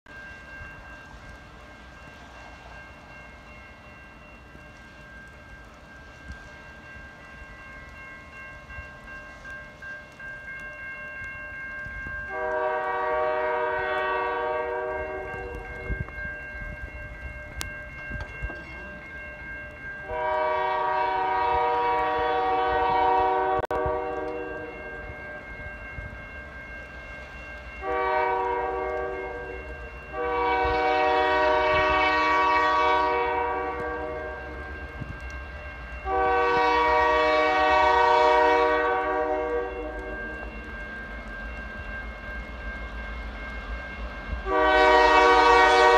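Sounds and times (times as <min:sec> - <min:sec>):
locomotive air horn blasts: 0:12.3 - 0:15.7, 0:20.0 - 0:24.8, 0:27.8 - 0:34.6, 0:36.0 - 0:40.1, 0:44.4 - 0:45.9.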